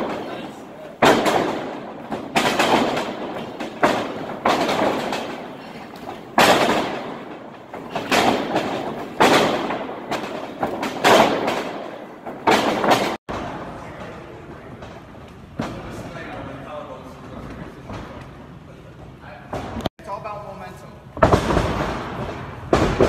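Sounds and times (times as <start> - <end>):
wrestlers slamming onto ring mat: 0.0 - 13.6.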